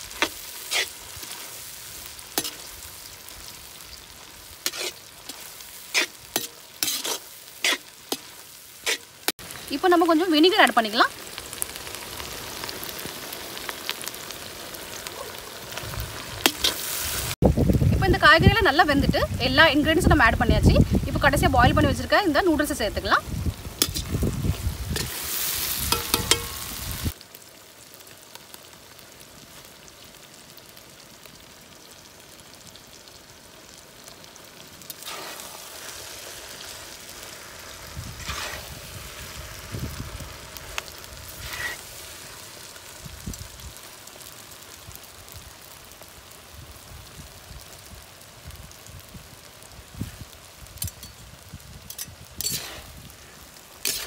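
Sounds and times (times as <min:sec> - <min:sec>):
food sizzling in a wok: 0:00.0 - 0:54.0
metal spatulas scraping a pan: 0:00.2 - 0:01.4, 0:02.4 - 0:02.7, 0:04.6 - 0:09.2, 0:23.8 - 0:24.1, 0:25.9 - 0:26.7, 0:38.2 - 0:38.7, 0:51.9 - 0:52.9.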